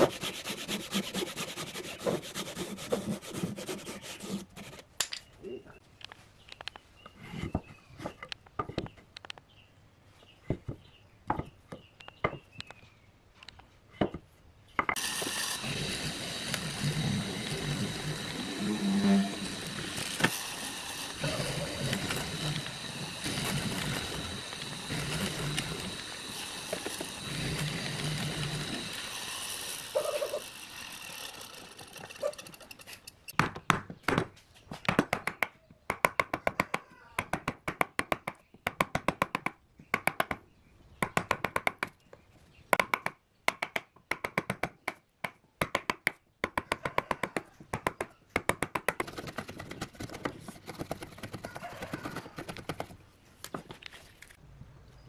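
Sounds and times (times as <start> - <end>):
hand chisel cutting wood: 0.0 - 4.9, 14.9 - 33.1, 47.8 - 53.0
mortiser motor humming: 15.0 - 32.8
chisel bit boring into wood: 15.0 - 33.2.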